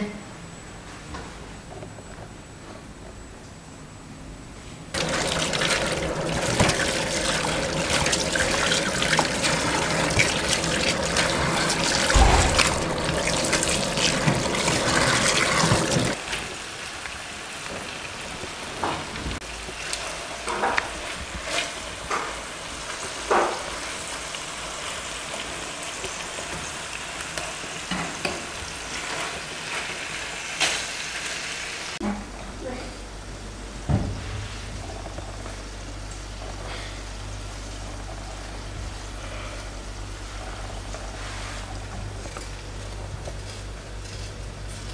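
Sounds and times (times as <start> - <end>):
meat sizzling in a frying pan: 5.0 - 32.0.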